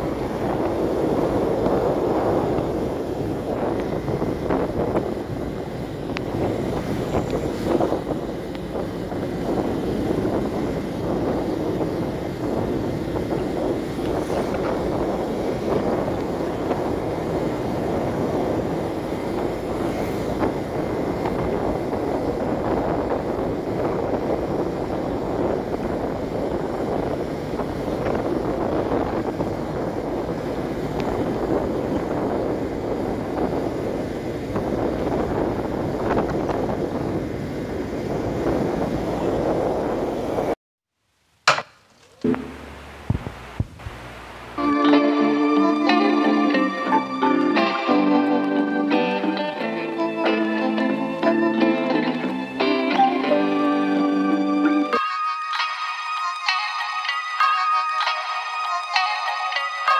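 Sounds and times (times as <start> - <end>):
wind rush over microphone: 0.0 - 40.6, 42.3 - 44.6
road noise: 0.0 - 59.9
motorcycle engine: 41.5 - 44.6.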